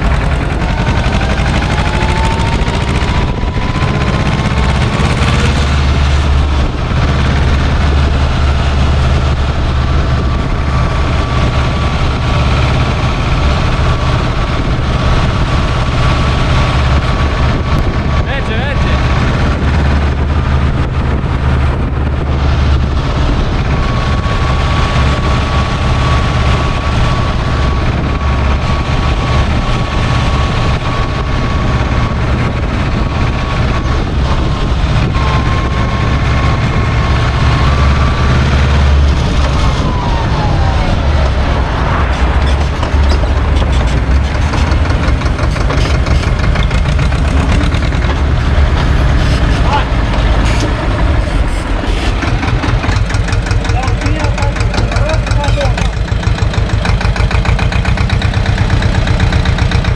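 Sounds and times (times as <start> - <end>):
tractor diesel engine running: 0.0 - 59.9
brief falling tone: 35.1 - 38.2.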